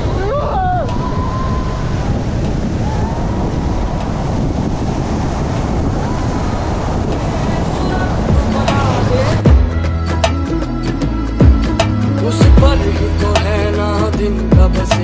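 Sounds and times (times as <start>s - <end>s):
wind buffeting microphone: 0.0s - 11.8s.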